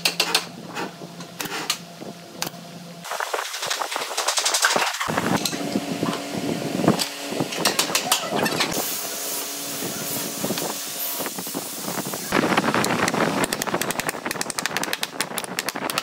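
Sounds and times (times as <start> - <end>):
steady hum: 0.4 - 15.9
steady hiss: 8.8 - 12.4.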